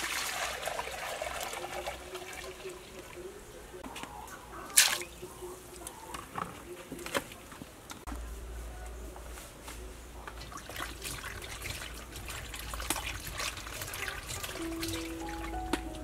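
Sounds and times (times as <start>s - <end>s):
water sloshing in metal bowl: 10.4s - 15.5s
water drips: 10.4s - 16.0s
soft music notes: 14.6s - 16.0s.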